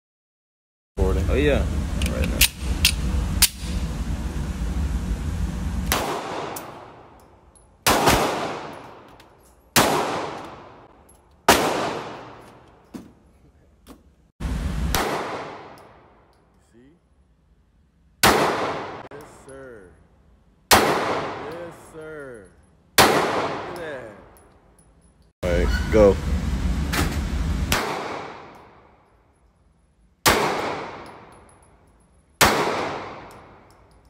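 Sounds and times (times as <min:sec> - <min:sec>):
low rumble: 0:01.1 - 0:07.3
pistol shots echoing indoors: 0:07.8 - 0:09.0, 0:09.7 - 0:12.5, 0:18.2 - 0:19.1, 0:20.7 - 0:21.5, 0:30.2 - 0:31.6, 0:32.4 - 0:33.5.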